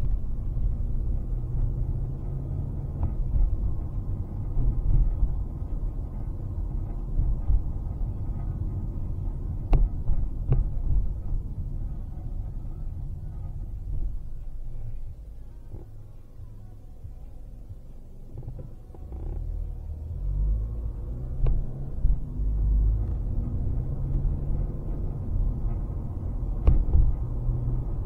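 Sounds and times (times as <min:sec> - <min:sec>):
car driving rumble from inside: 0:00.0 - 0:28.0.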